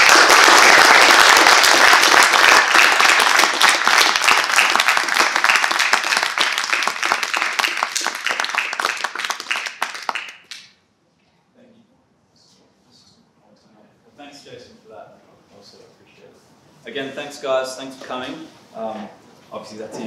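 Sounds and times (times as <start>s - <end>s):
audience applauding: 0.0s - 10.7s.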